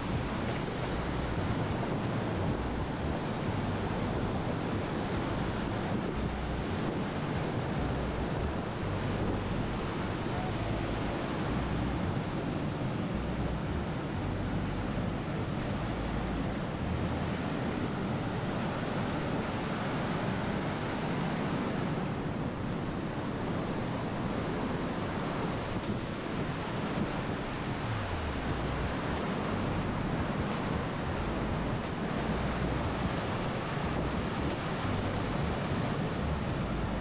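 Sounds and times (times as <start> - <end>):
rushing white-water rapids: 0.0 - 37.0
wind buffeting microphone: 0.0 - 37.0
waterfall roaring: 9.8 - 37.0.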